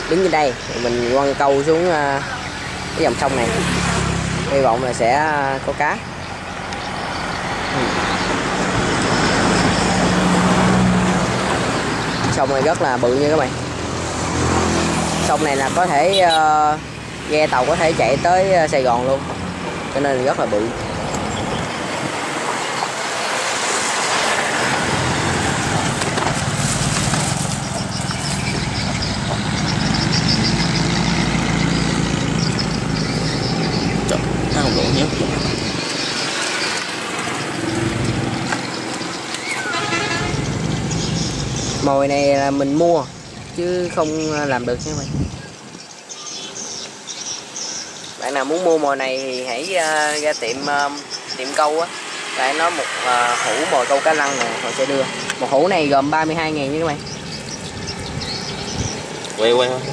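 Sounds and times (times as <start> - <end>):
road traffic passing: 0.0 - 59.9
heavy engine rumble: 24.5 - 45.2.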